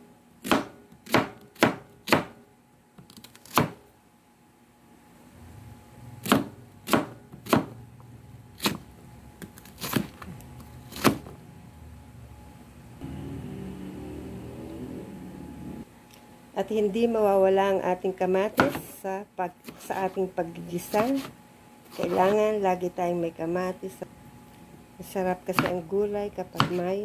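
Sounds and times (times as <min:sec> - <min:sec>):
knife slicing onion on board: 0:00.4 - 0:02.4, 0:06.2 - 0:07.8, 0:08.6 - 0:10.2, 0:10.8 - 0:11.3, 0:18.5 - 0:18.9, 0:20.8 - 0:22.4, 0:26.5 - 0:26.9
faint low hum: 0:07.7 - 0:27.0.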